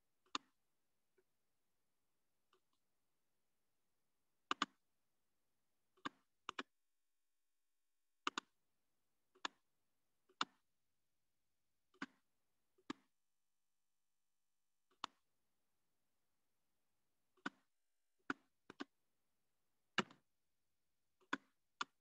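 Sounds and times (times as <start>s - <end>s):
computer mouse clicking: 4.5s - 4.8s.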